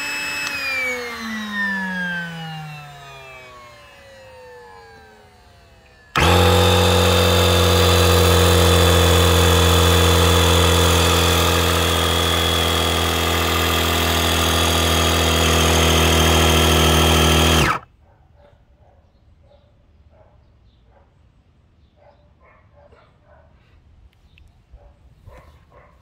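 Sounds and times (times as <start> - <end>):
electric inflation pump humming: 6.1 - 17.8.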